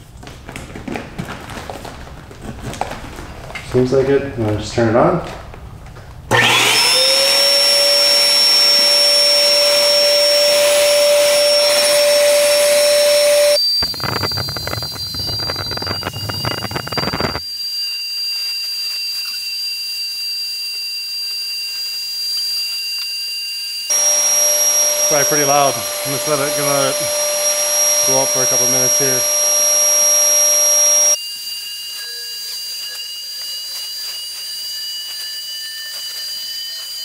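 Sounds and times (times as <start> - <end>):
electric pump motor whine: 6.3 - 19.1, 19.8 - 31.2.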